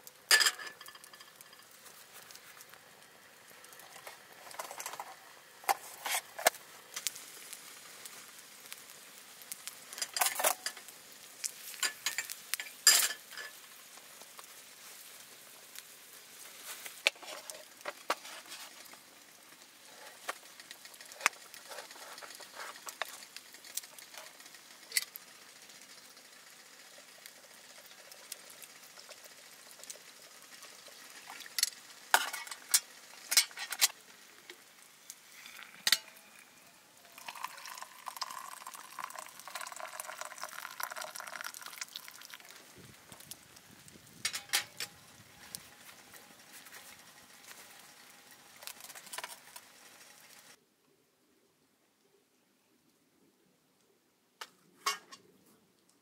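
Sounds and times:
food sizzling in a pan: 0.0 - 50.6
utensil clinking and scraping: 0.3 - 2.4, 9.9 - 10.9, 11.5 - 13.6, 16.8 - 19.0, 19.9 - 25.2, 29.8 - 34.0, 44.2 - 47.7, 54.8 - 55.3.

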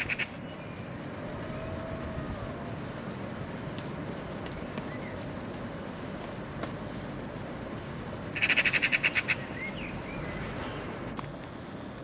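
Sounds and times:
magpie rattling chatter: 0.0 - 0.4, 8.3 - 9.5.

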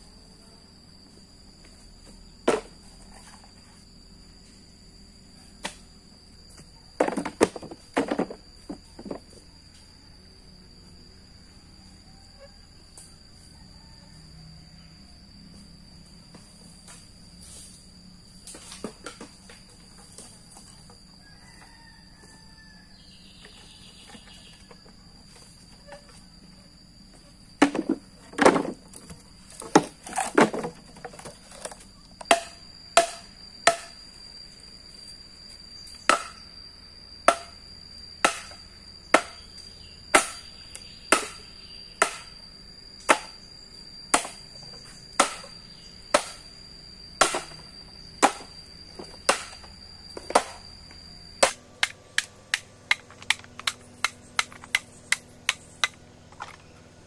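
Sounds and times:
high-pitched insect drone: 0.0 - 57.0
sharp chopping strikes: 32.3 - 33.9, 36.1 - 36.4, 38.2 - 38.6, 40.2 - 40.4, 41.1 - 41.4, 42.0 - 42.3, 44.1 - 44.4, 45.2 - 45.5, 46.2 - 46.4, 47.2 - 47.6, 49.2 - 49.6, 51.4 - 56.0.

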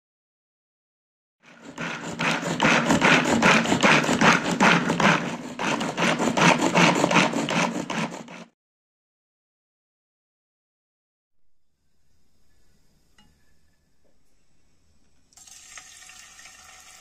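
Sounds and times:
hand chopper crushing peas: 1.4 - 8.5.

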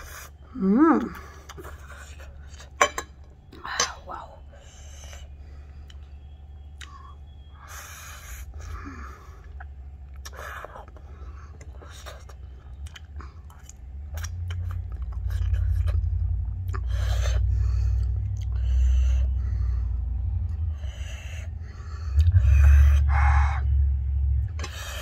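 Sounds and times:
person chewing: 0.0 - 2.8, 8.6 - 19.1, 22.1 - 22.4
low rumble: 12.4 - 25.0.

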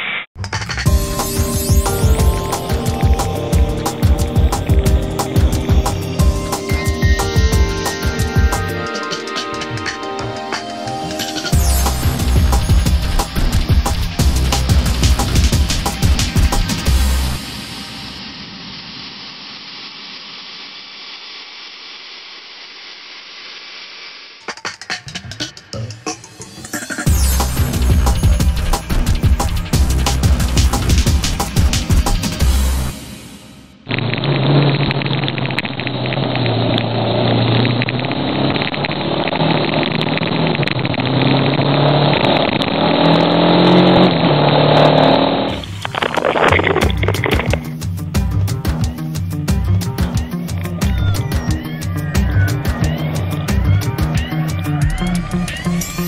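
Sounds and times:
rattle and rush of rough track: 0.4 - 10.6, 11.3 - 17.6, 24.4 - 33.0, 33.8 - 55.9
motorcycle engine revving: 33.9 - 45.8.

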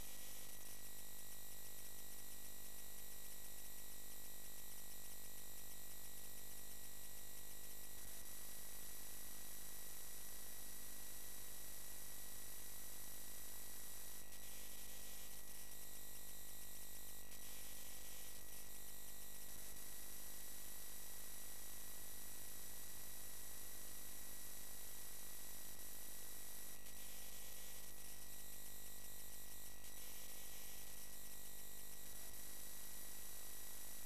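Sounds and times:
electrical hum and buzz: 24.5 - 34.0.

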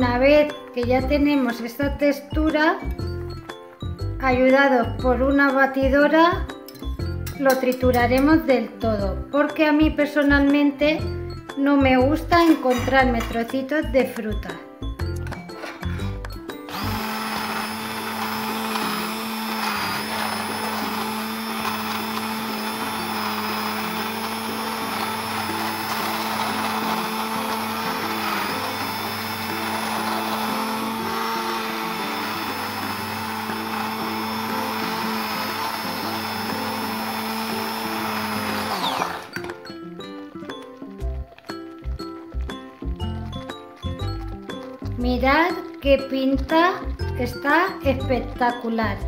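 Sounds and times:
immersion blender running: 16.0 - 39.6.

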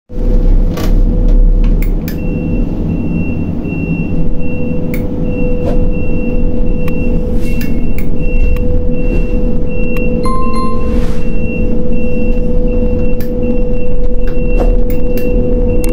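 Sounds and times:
crane machinery rumble and hum: 0.1 - 15.9
high-pitched warning beeper: 10.2 - 12.9.

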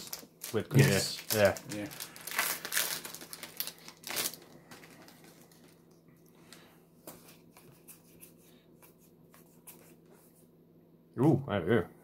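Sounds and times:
booster pack wrapper rustling: 0.0 - 6.6.

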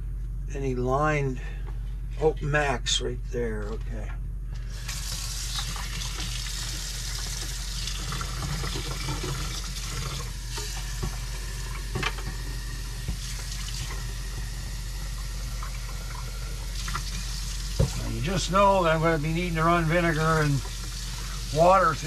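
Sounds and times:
tap water filling plastic reservoir: 4.9 - 18.1, 20.2 - 21.7.

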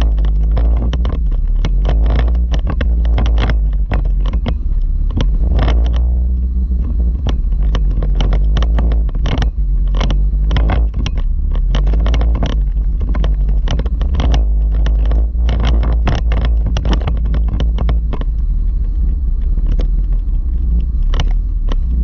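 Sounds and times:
knocks and rattles: 0.0 - 22.0
vehicle low rumble: 0.0 - 22.0.

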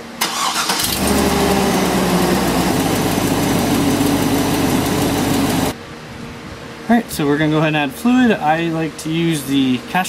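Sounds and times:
pickup engine idling: 0.9 - 5.7.

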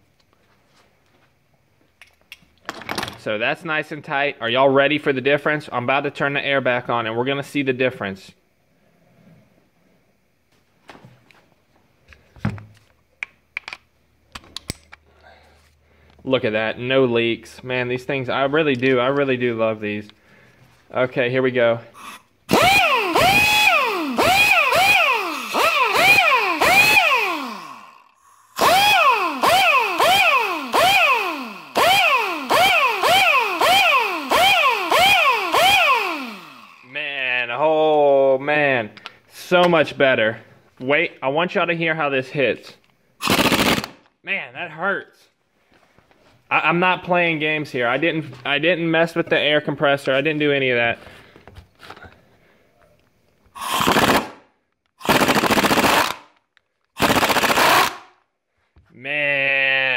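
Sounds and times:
air impact wrench whining: 22.0 - 37.0, 43.2 - 44.1, 53.5 - 54.4, 55.0 - 56.3, 57.0 - 58.1.

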